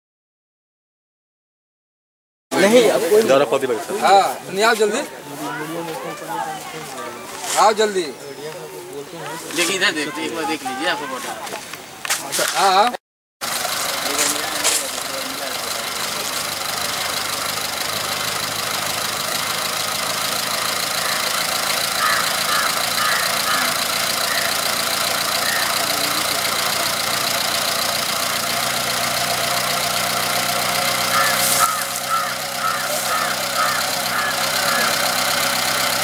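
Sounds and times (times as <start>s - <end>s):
helicopter engine and rotor: 17.0s - 27.2s.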